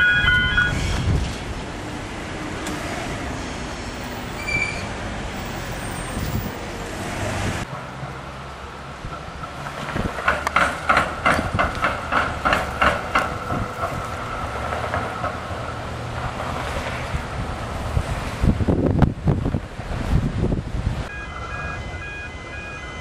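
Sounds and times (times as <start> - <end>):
ringing metallic tone: 0.0 - 0.9
tram wheels clacking over crossing: 7.7 - 20.1.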